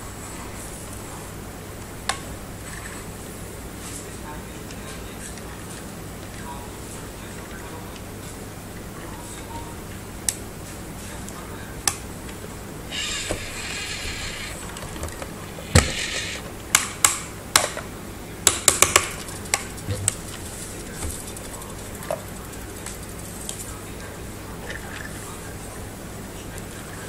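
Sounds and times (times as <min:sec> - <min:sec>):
plastic toy clicks and knocks: 0:18.4 - 0:22.2.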